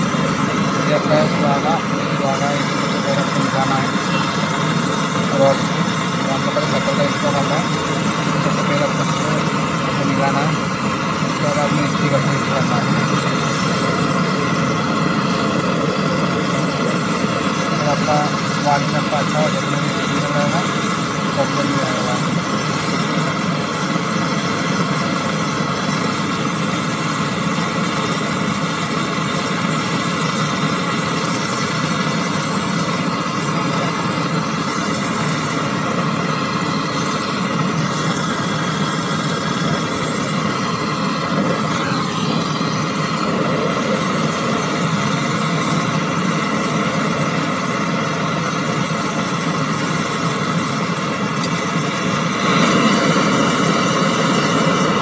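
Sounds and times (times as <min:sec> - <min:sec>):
gas torch hissing: 0:00.0 - 0:55.0.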